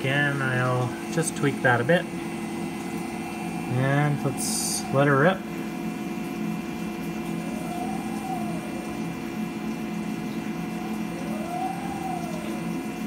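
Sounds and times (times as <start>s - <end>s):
milling machine hum and whine: 0.0s - 13.0s
coolant spraying hiss: 2.8s - 5.9s
rising and falling whine: 7.2s - 13.0s.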